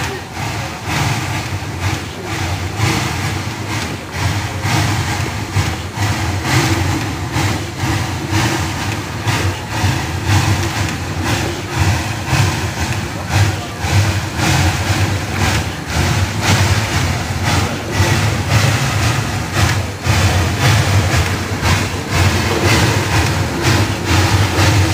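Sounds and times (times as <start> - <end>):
steam locomotive chuffing: 0.0 - 24.9.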